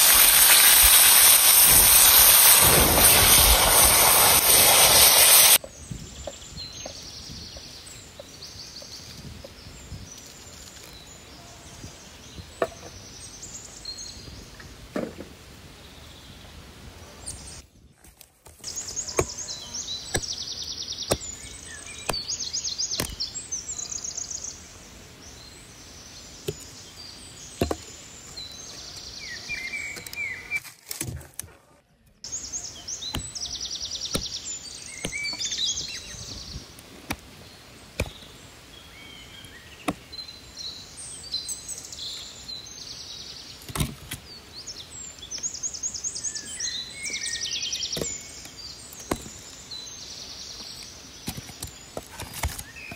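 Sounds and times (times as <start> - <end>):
songbirds trilling: 18.6 - 30.7, 32.2 - 52.9.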